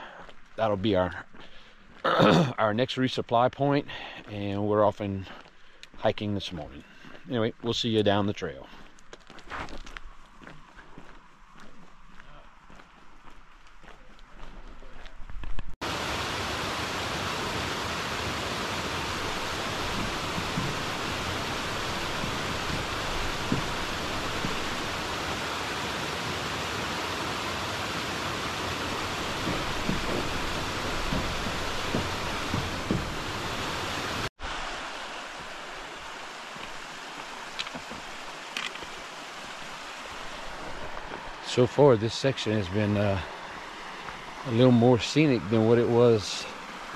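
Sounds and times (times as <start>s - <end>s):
stream rushing over rocks: 15.8s - 46.9s.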